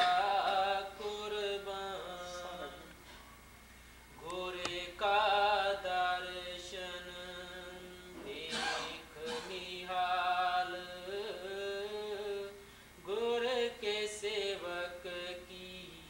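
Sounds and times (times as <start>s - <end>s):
person chanting a hymn: 0.0s - 3.0s, 4.2s - 16.0s.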